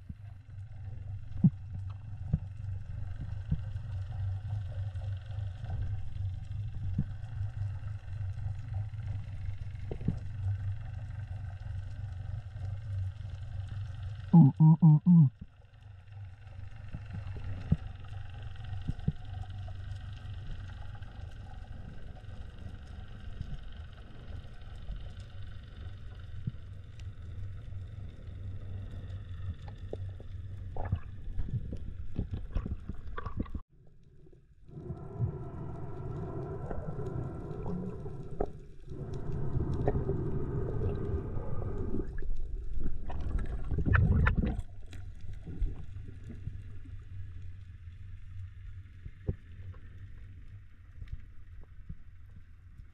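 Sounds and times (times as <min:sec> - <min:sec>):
muffled underwater rumble: 0:00.0 - 0:52.9.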